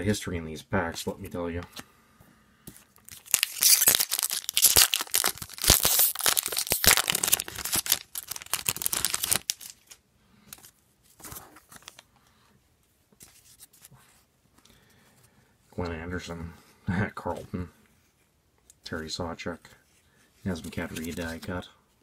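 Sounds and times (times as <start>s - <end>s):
cards rustling: 2.7s - 12.1s, 20.5s - 21.6s
foil wrapper tearing and crinkling: 3.1s - 10.0s.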